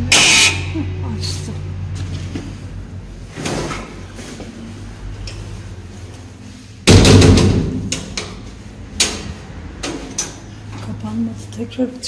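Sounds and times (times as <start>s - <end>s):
heavy door banging shut: 6.9s - 7.9s.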